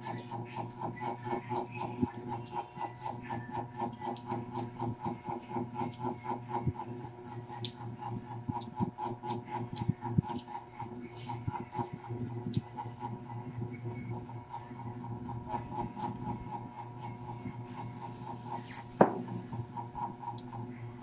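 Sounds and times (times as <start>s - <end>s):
pulsing mechanical hum: 0.0s - 21.0s
eating clicks and crunches: 7.5s - 7.9s, 8.5s - 10.5s.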